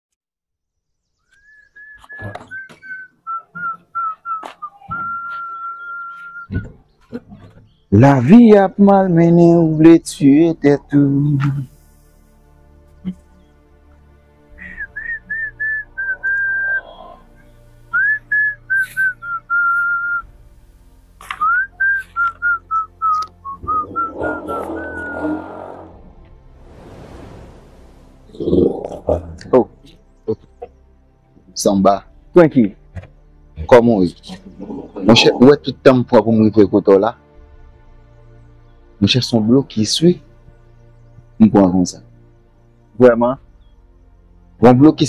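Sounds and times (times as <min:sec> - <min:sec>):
person whistling a tune: 0:01.4 - 0:06.6, 0:14.6 - 0:17.0, 0:17.9 - 0:20.2, 0:21.4 - 0:25.3
rushing noise: 0:24.0 - 0:28.6.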